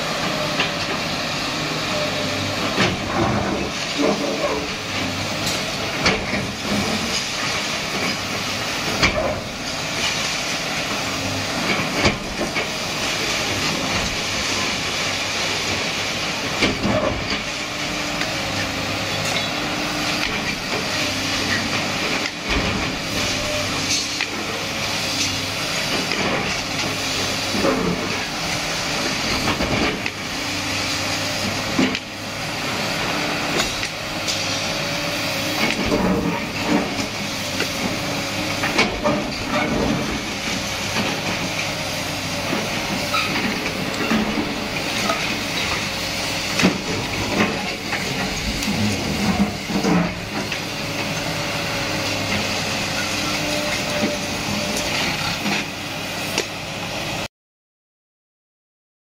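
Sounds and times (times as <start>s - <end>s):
diesel engine under load: 0.0s - 57.3s.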